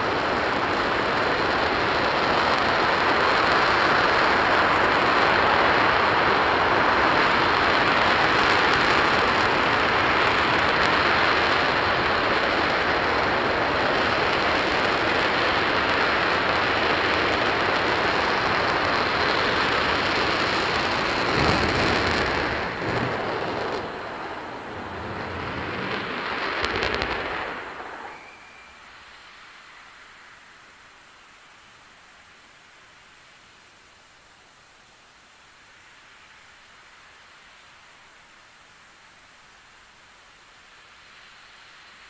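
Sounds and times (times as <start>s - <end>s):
rocket engine roaring: 0.0s - 30.6s.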